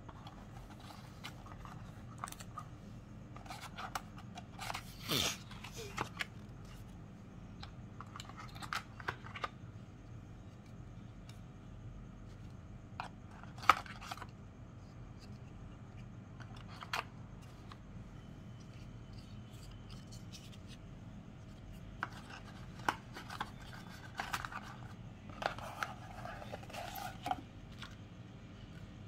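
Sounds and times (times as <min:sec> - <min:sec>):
cardboard and plastic rustling: 0:00.0 - 0:07.0, 0:16.4 - 0:28.2.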